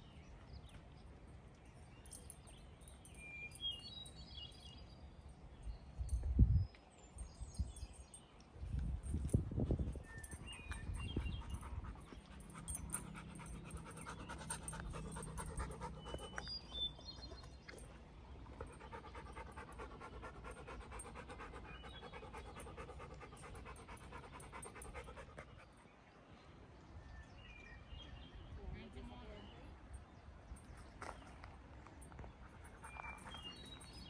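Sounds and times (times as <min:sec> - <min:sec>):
dog panting: 0:10.8 - 0:17.5, 0:18.5 - 0:25.8.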